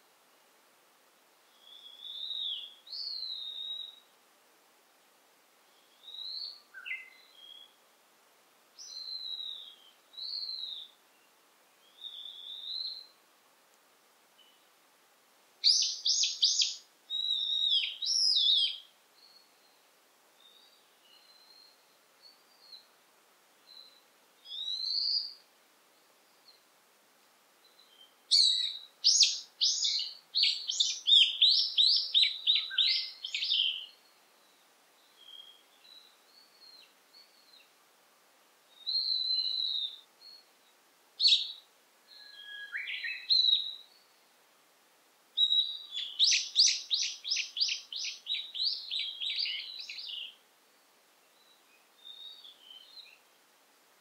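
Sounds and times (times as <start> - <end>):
songbirds singing: 1.5 - 4.1, 5.7 - 7.8, 8.8 - 13.2, 15.6 - 23.0, 23.6 - 26.7, 27.6 - 37.8, 38.6 - 44.3, 45.4 - 53.4
distant bird calls: 15.6 - 19.4, 27.9 - 34.0, 45.4 - 50.4.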